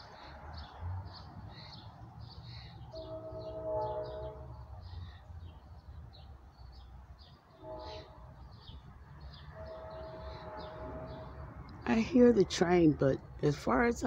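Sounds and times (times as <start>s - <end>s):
songbirds chirping: 0.0s - 14.0s
distant train horn blasts: 2.5s - 5.2s, 7.5s - 11.7s.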